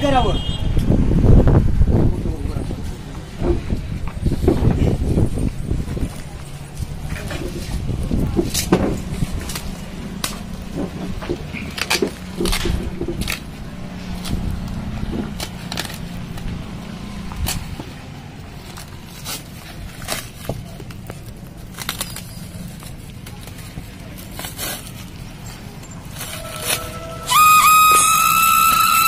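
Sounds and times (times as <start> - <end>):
plastic wrapping crinkling: 18.6 - 29.0.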